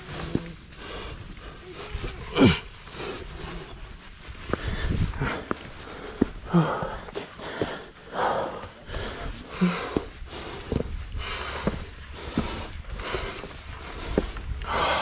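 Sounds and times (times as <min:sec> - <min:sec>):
heavy breathy panting: 0:00.0 - 0:15.0
hands and shoes scuffing rock: 0:03.3 - 0:14.6.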